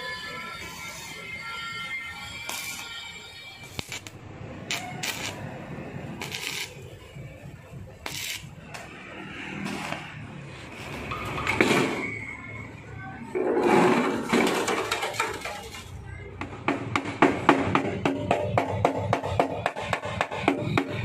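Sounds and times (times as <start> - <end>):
welding arc crackling: 2.3 - 7.3, 8.0 - 8.9.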